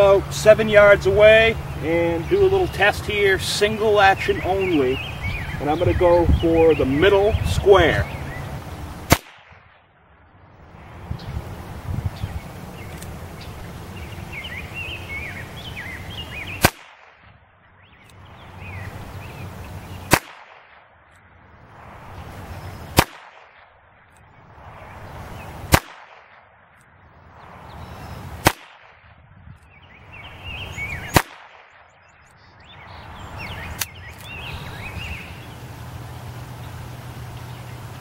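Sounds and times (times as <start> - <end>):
revolver shots: 9.0 - 9.7, 15.6 - 17.2, 19.9 - 20.8, 22.5 - 23.7, 25.6 - 26.4, 28.3 - 29.0, 30.8 - 31.7
faint gunshot crack: 9.1 - 9.8, 20.1 - 20.9, 23.0 - 23.7, 25.7 - 26.5, 31.1 - 31.8.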